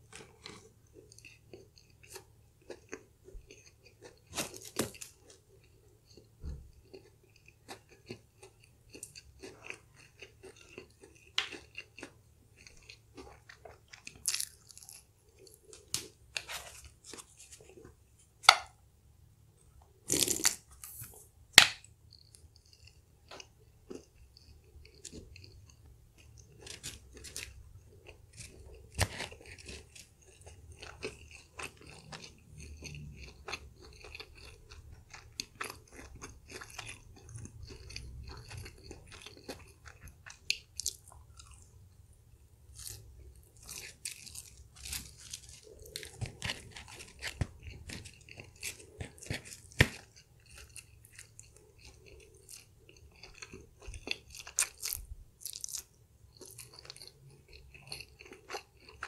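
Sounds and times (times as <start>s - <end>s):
chewing crispy fried chicken: 0.0s - 18.8s, 19.9s - 59.0s.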